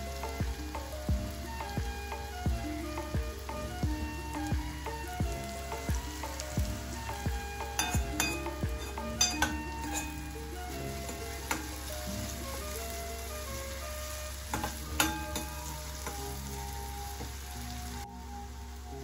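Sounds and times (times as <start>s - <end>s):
onion sizzling in hot oil: 0.0s - 19.0s
metal spoon scraping pan: 7.7s - 10.4s, 14.5s - 16.2s.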